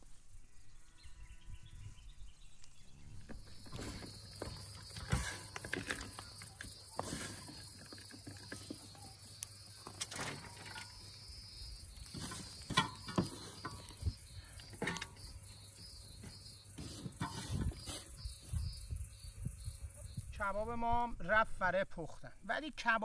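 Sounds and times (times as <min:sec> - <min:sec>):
high insect-like buzz: 0:02.9 - 0:20.4.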